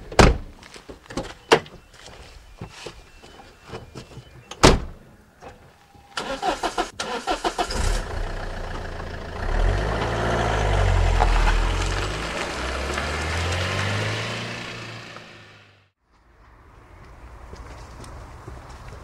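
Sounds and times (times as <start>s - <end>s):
car door slamming: 4.6s - 5.0s
car engine running and revving: 7.8s - 15.9s.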